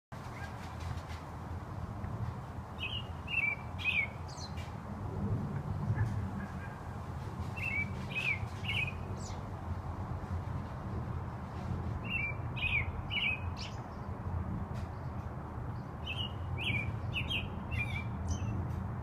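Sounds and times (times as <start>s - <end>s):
robin singing: 2.8s - 4.6s, 7.6s - 9.4s, 12.0s - 14.1s, 15.8s - 18.6s.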